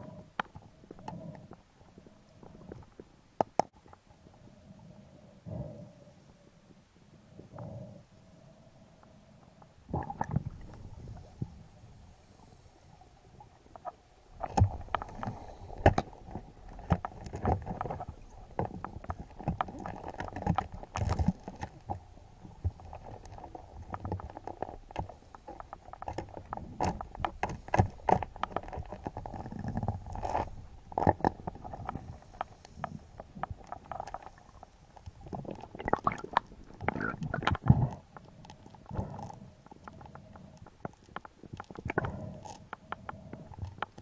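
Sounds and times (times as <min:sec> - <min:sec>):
muffled underwater knocks and clicks: 0:02.4 - 0:04.0, 0:13.8 - 0:34.4, 0:35.2 - 0:44.0.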